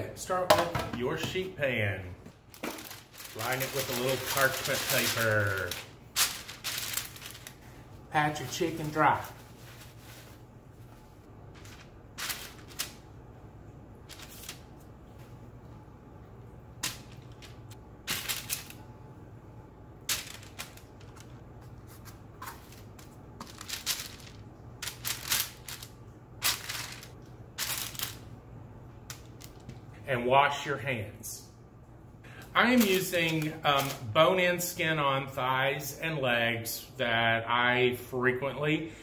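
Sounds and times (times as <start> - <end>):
low steady hum: 0.0 - 39.0
parchment paper crinkling: 2.5 - 13.0, 14.1 - 14.9, 20.1 - 28.2.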